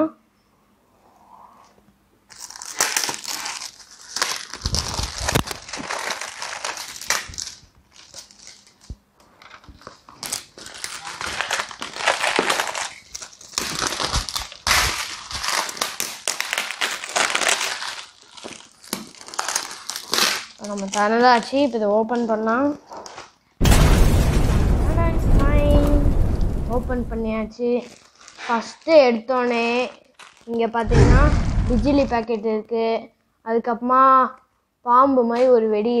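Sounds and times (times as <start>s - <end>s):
plastic wrap crinkling: 2.3s - 21.9s, 24.9s - 32.4s.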